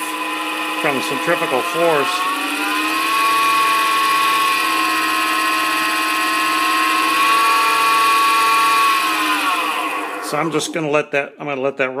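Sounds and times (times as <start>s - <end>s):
lathe motor whine: 0.0s - 10.8s.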